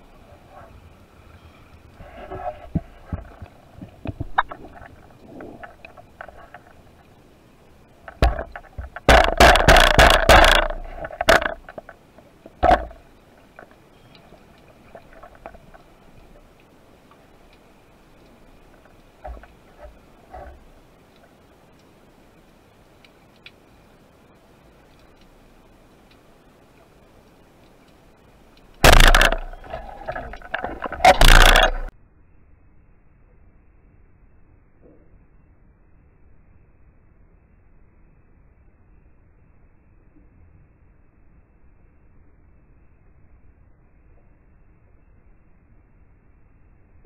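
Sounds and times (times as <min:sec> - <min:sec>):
underwater rushing and scraping: 0:00.0 - 0:21.4, 0:28.7 - 0:31.9
faint clicking: 0:00.0 - 0:31.9
rattling and crackling: 0:02.0 - 0:07.1, 0:08.0 - 0:16.6, 0:28.6 - 0:31.9
speargun firing crack underwater: 0:08.1 - 0:11.9, 0:12.6 - 0:13.0, 0:28.8 - 0:31.9
loud rough burst: 0:28.8 - 0:30.2.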